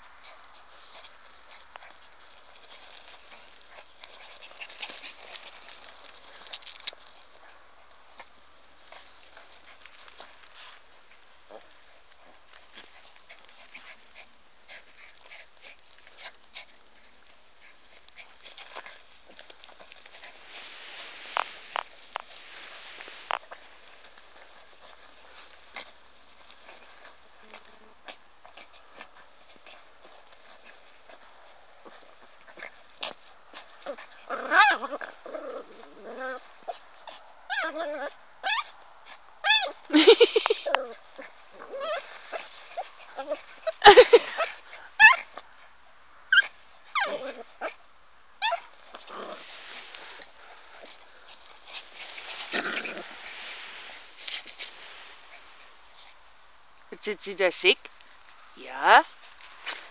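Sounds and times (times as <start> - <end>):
rustling in dry grass: 0.0 - 59.9
dog whimpering: 37.5 - 38.7, 39.4 - 41.0
dogs yipping and whining: 37.5 - 38.8, 39.4 - 41.0, 41.6 - 45.3, 46.3 - 47.7, 48.4 - 48.9.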